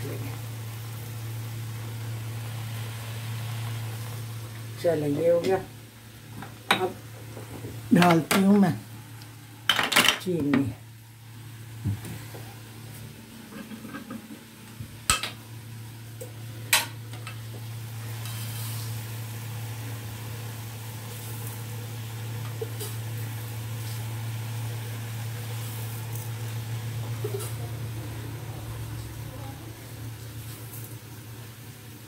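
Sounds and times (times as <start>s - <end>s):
steady low hum: 10.7s - 32.0s.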